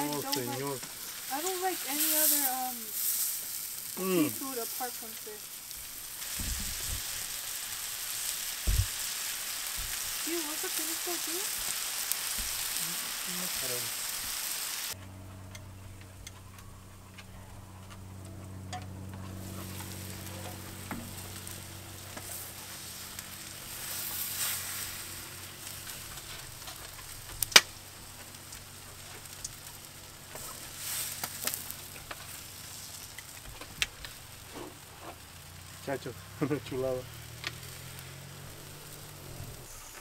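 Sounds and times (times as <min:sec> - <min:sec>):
fish sizzling on a grill: 0:00.0 - 0:40.0
steady low hum: 0:14.9 - 0:40.0.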